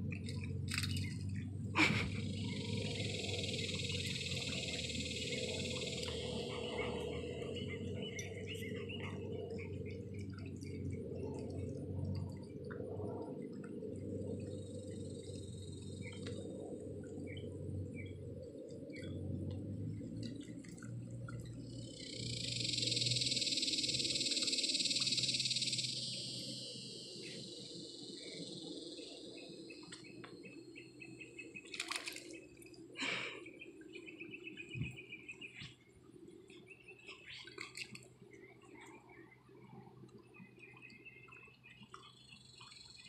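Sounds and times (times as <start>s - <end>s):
birds chirping: 0.2s - 12.8s, 14.0s - 43.0s
water running over concrete: 31.6s - 33.3s.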